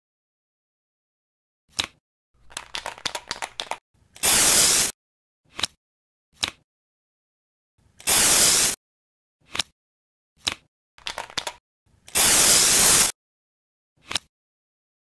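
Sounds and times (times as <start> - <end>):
aerosol spray hissing: 4.2 - 4.9, 8.0 - 8.8, 12.1 - 13.1.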